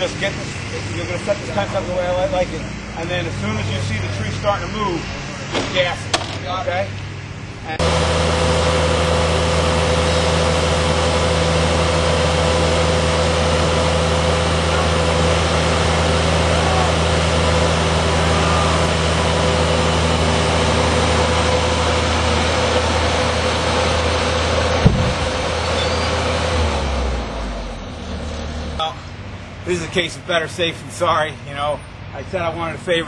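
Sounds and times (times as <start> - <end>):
skid loader engine at high throttle: 7.0 - 33.0.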